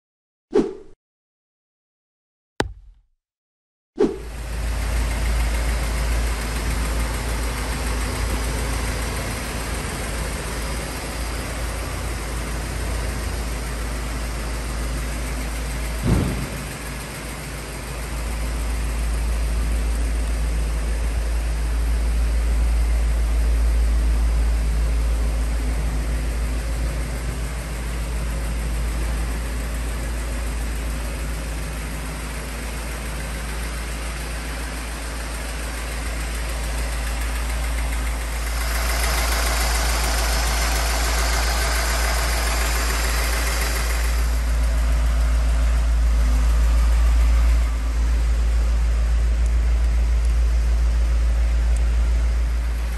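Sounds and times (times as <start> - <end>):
car engine idling: 4.3 - 52.9.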